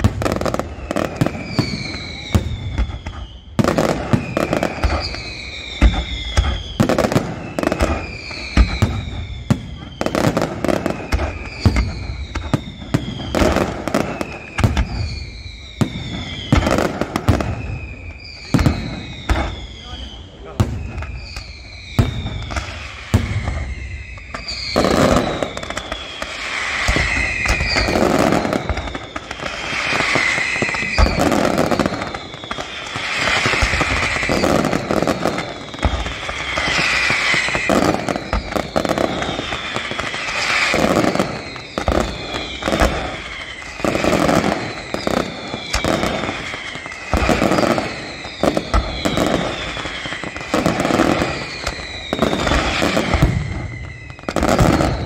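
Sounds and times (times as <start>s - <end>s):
firework shells bursting: 0.0s - 19.6s
falling whistling tones: 0.0s - 55.0s
fireworks crackling: 0.0s - 55.0s.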